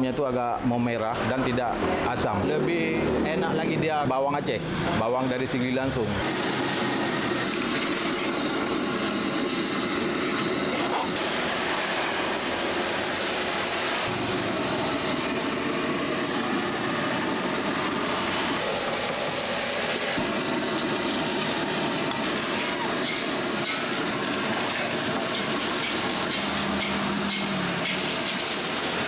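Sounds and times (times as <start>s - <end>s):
gas stove burner roaring: 1.8s - 29.0s
food frying in a wok: 21.1s - 29.0s.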